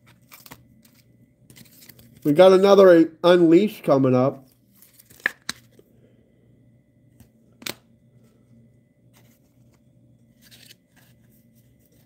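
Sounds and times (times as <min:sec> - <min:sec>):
trading cards handled and flipped: 0:00.0 - 0:02.3, 0:04.4 - 0:05.9, 0:07.1 - 0:12.0
faint steady hum: 0:00.0 - 0:12.0
card snap: 0:05.0 - 0:05.7, 0:07.6 - 0:07.8.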